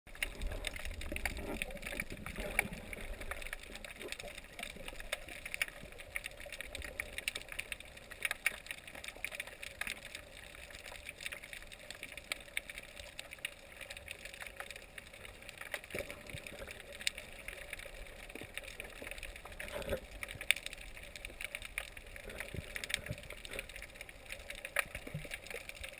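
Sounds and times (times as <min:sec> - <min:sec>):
low rumble of water: 0:00.1 - 0:25.9
small clicks and crackles: 0:00.1 - 0:25.9.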